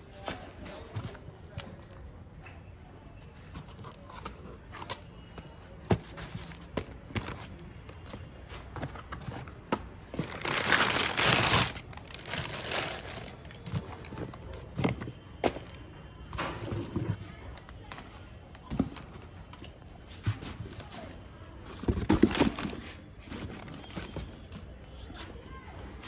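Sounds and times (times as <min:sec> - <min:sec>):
cardboard packaging handled: 0:05.8 - 0:15.7, 0:20.2 - 0:24.7
plastic bag crinkling: 0:10.1 - 0:14.2.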